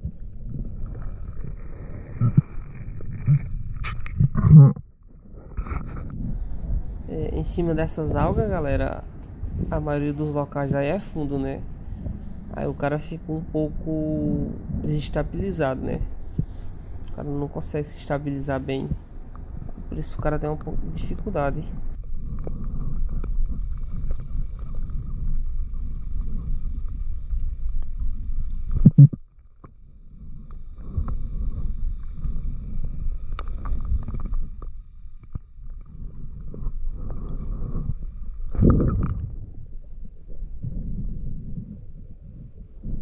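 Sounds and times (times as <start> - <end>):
muffled underwater rumble: 0.0 - 43.0
faint thin hum: 5.6 - 22.0.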